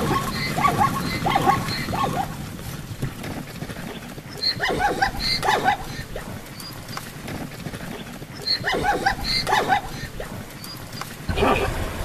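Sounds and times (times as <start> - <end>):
zebra barking: 0.0 - 2.4, 4.3 - 6.8, 8.4 - 11.8.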